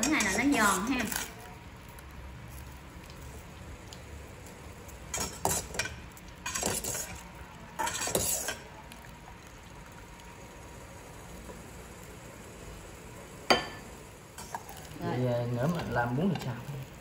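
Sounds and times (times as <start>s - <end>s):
metal skimmer scraping a pot: 6.4s - 7.2s.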